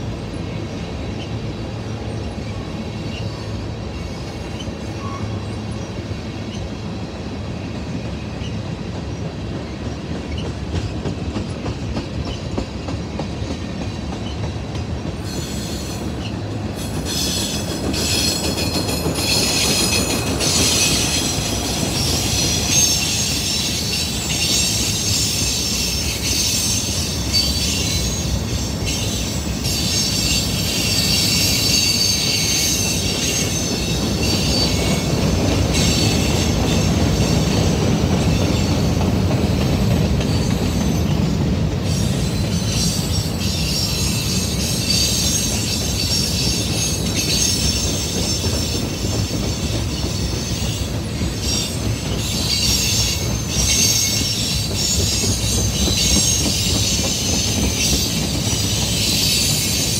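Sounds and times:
train wheels rumbling on rails: 0.0s - 59.9s
high-pitched wheel squeal: 17.1s - 35.0s, 42.0s - 59.9s.

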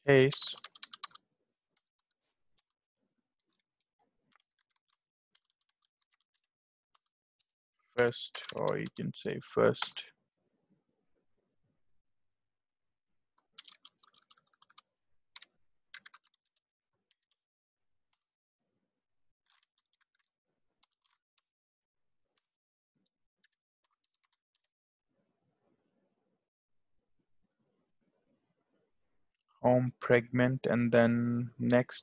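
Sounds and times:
typing on keyboard: 0.3s - 1.2s, 13.4s - 17.4s.

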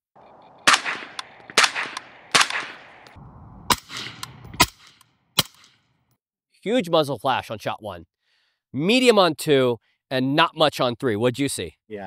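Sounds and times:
suppressed rifle shots: 0.3s - 5.8s.

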